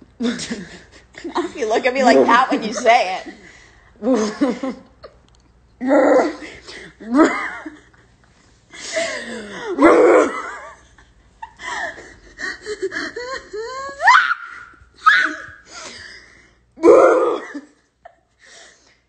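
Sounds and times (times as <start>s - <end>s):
women laughing: 0.2s - 5.2s, 7.0s - 8.1s, 8.8s - 14.3s.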